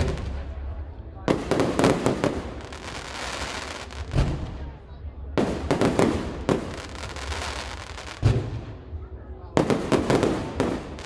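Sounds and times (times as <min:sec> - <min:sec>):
small fireworks pops: 0:01.3 - 0:04.6
fireworks crackle: 0:01.3 - 0:04.8, 0:05.4 - 0:08.7, 0:09.6 - 0:11.0
fireworks bangs: 0:01.3 - 0:08.9, 0:09.5 - 0:11.0.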